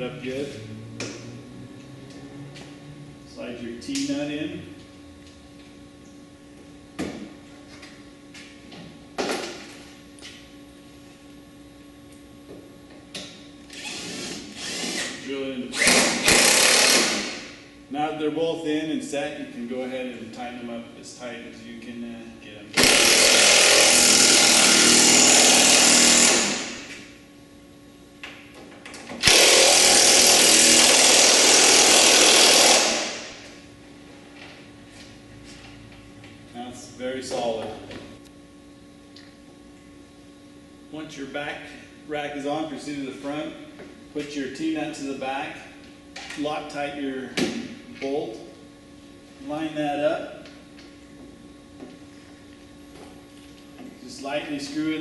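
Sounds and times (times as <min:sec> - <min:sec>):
cordless drill driving bolts: 0:15.8 - 0:17.3, 0:22.8 - 0:26.8, 0:29.2 - 0:33.2.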